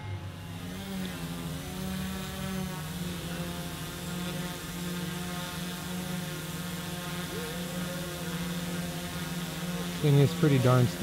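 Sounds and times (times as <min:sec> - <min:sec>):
quadcopter buzzing hum: 0:00.0 - 0:11.0.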